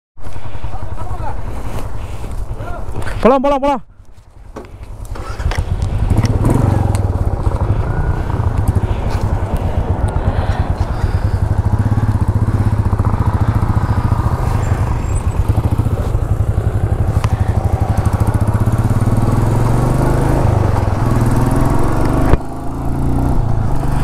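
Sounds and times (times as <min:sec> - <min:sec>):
motorcycle engine accelerating: 0:04.8 - 0:24.0.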